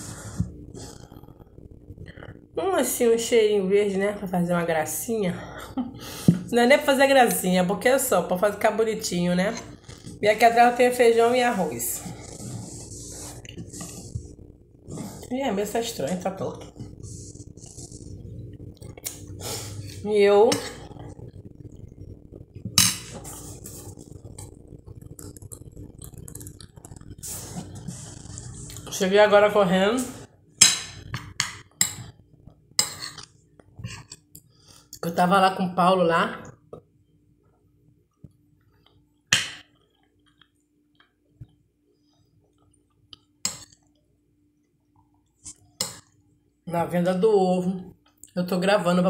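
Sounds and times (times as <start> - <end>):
soft chewing: 9.6 - 10.2, 11.9 - 15.3, 16.6 - 20.0, 20.6 - 29.0
mouth sounds of eating: 16.5 - 20.0, 20.6 - 29.0.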